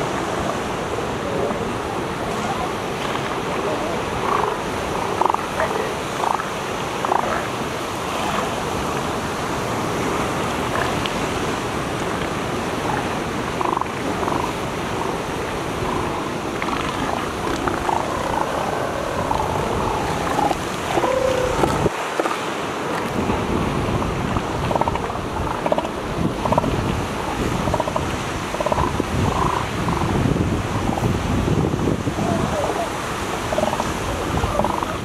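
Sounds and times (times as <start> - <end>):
surf rushing: 0.0 - 35.0
wind: 0.0 - 35.0
elephant seals calling: 2.4 - 7.6, 12.8 - 22.4, 27.6 - 30.1, 32.3 - 35.0.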